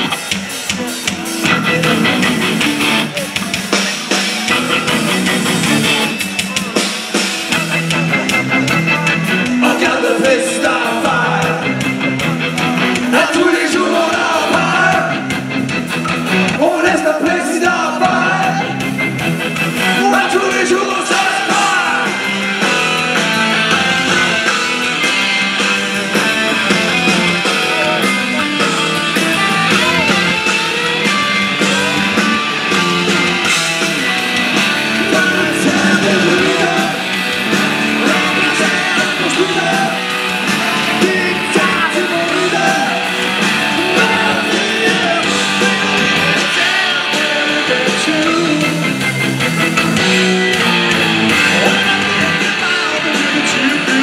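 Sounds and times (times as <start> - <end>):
rock band playing: 0.0 - 54.0
person singing: 7.6 - 11.8, 13.0 - 15.4, 34.0 - 49.0, 51.3 - 54.0.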